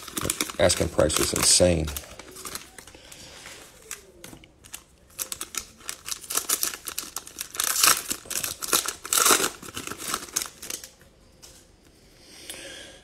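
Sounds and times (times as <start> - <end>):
foil wrapper crinkling: 0.0 - 11.0.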